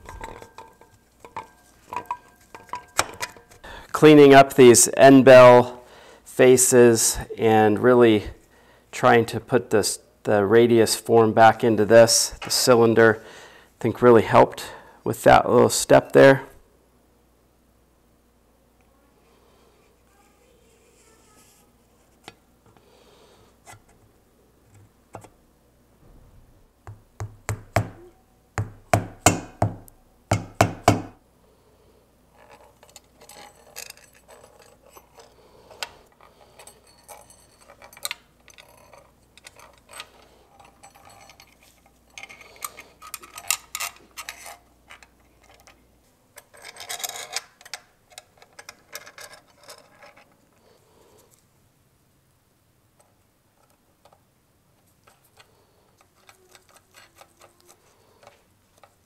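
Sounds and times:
metal parts knocking: 0.0 - 3.6, 32.4 - 45.7.

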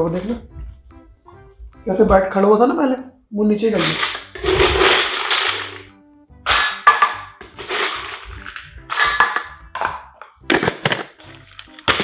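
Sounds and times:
dry kibble clattering into metal bowl: 3.8 - 5.9, 6.5 - 12.0.

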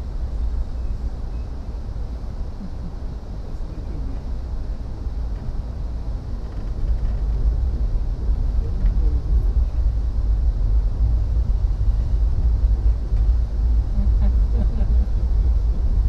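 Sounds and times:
vehicle rumble from inside: 0.0 - 16.0
faint voices: 2.6 - 4.4.

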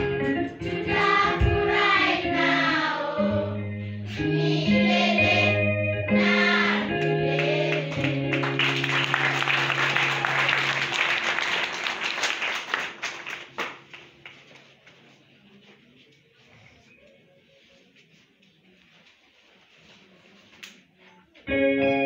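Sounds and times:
children's choir singing: 0.0 - 9.4
low accompaniment: 0.0 - 11.2
audience applauding: 7.4 - 14.5.

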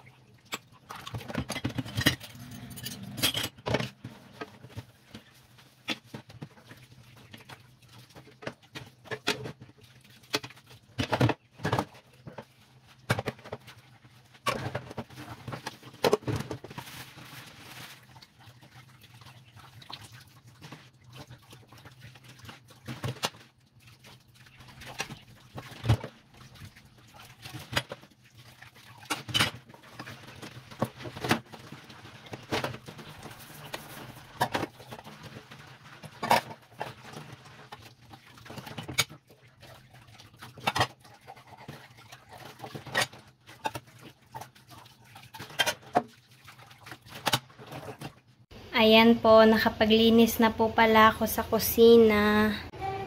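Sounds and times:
dishes clinking and knocking: 0.4 - 4.6
water splashing: 17.1 - 48.2.

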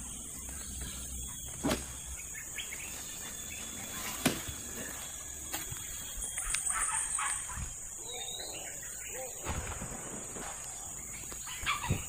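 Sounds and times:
rustling in undergrowth: 0.0 - 8.0
insects chirring: 0.0 - 12.0.

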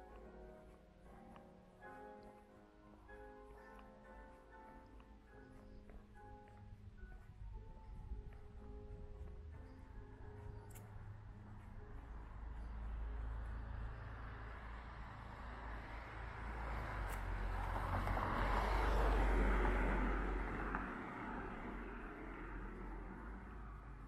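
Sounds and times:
car passing: 0.0 - 24.0
steady low rumble: 4.9 - 16.2.

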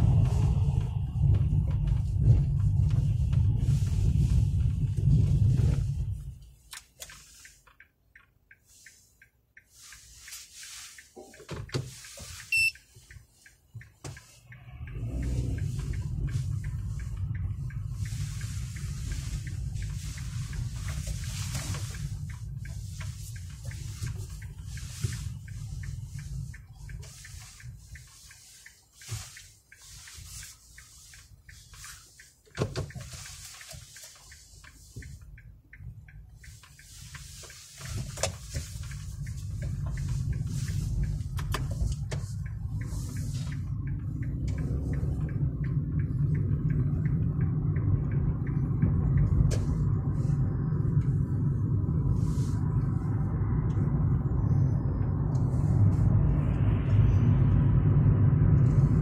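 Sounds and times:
low rumble of traffic: 0.0 - 59.0
electronic ticking: 6.9 - 55.3
short sharp beep: 12.5 - 12.9.

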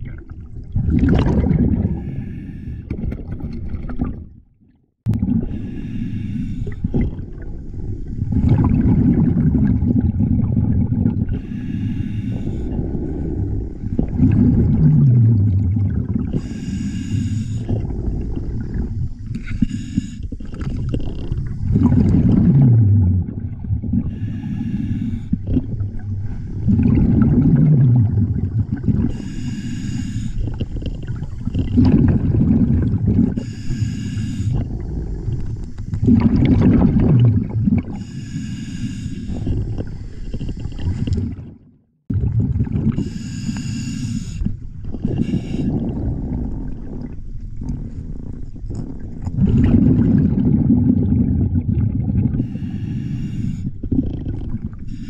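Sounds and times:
gurgling exhaled bubbles: 0.0 - 4.5, 5.1 - 55.0
hissing regulator inhale: 1.9 - 2.9, 5.4 - 8.4, 11.3 - 14.0, 16.3 - 21.9, 24.0 - 26.8, 29.0 - 31.7, 33.3 - 36.1, 37.9 - 41.1, 43.0 - 47.0, 52.3 - 55.0.

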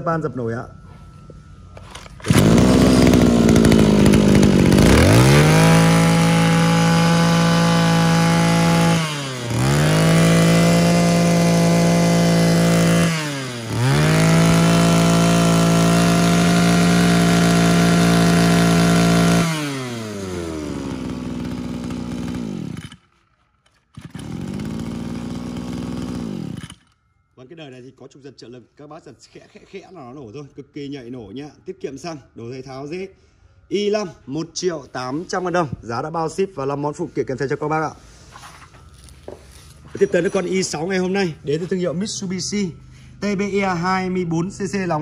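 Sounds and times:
brush cutter engine revving: 1.8 - 23.2, 23.9 - 27.0.

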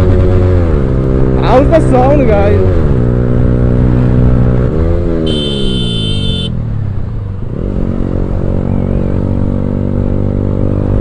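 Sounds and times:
motorcycle engine at speed: 0.0 - 11.0
high steady tone: 5.2 - 6.6.

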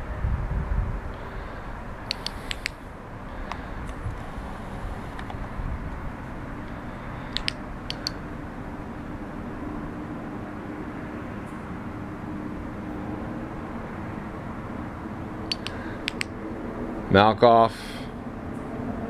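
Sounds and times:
low outdoor rumble: 0.0 - 19.0
flashlight switches clicking: 2.1 - 2.8, 6.6 - 8.2, 15.5 - 16.4.

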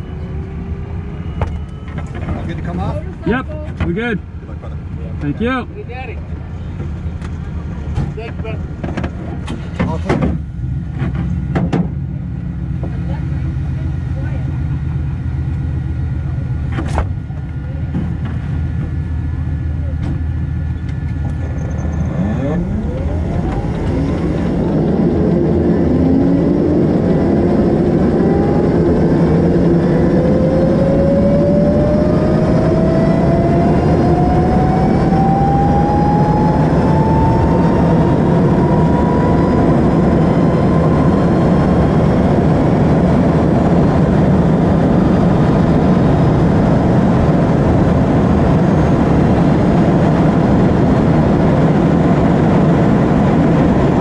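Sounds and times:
wind and tyre rush: 0.0 - 54.0
electric motor whine rising: 21.8 - 44.6.

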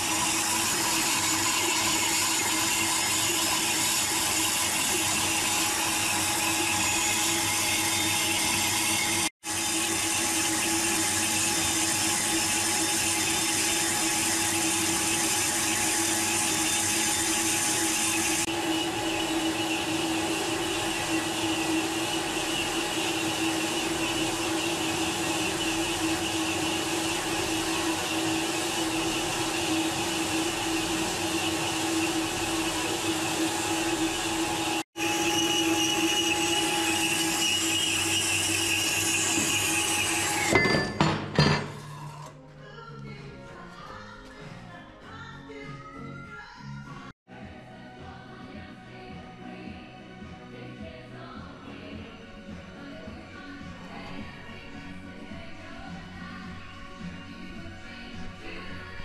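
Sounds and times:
metal lathe cutting steel: 0.0 - 42.3.

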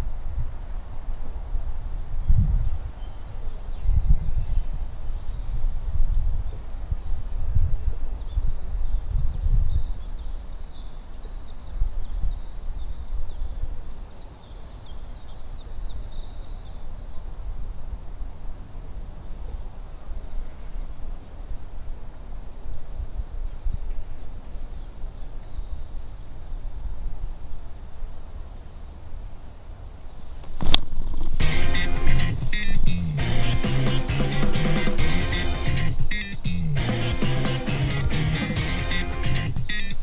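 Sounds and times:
wind buffeting microphone: 0.0 - 13.9
bird chirping: 2.2 - 5.7, 8.1 - 17.5, 30.1 - 40.0.

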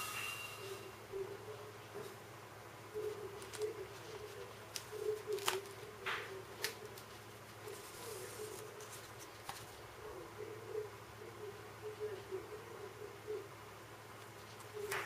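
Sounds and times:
faint wavering tone: 0.0 - 1.0
paper clicks and scrapes: 6.6 - 9.8.

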